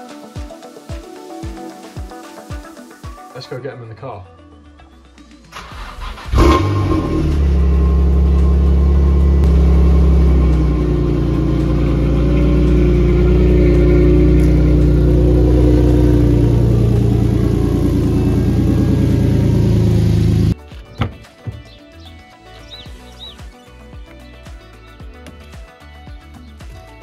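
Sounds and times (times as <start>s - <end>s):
car engine starting and idling: 5.5s - 20.6s.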